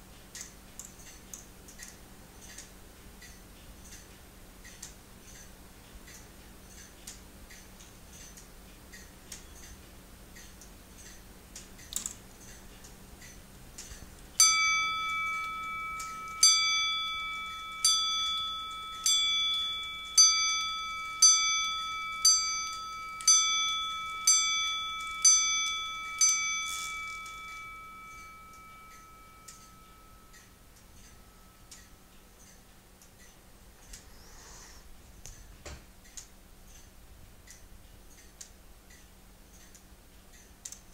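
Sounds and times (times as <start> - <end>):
clock bell striking: 14.4 - 32.0
quiet clicks: 35.2 - 40.9.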